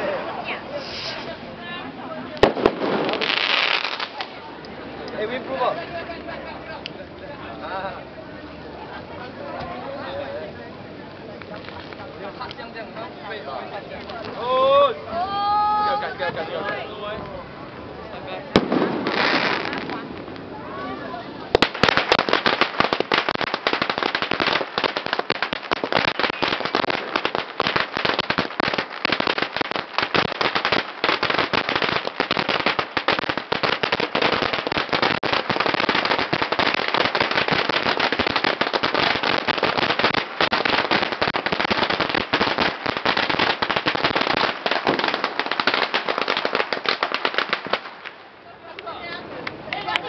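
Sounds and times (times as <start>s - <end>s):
firecrackers banging rapidly: 2.4s - 4.4s, 18.5s - 20.4s, 21.5s - 48.2s.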